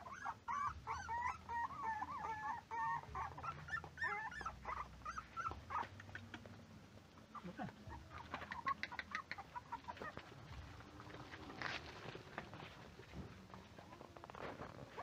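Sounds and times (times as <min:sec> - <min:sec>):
puppies whining and yelping: 0:00.0 - 0:06.3, 0:07.3 - 0:10.4.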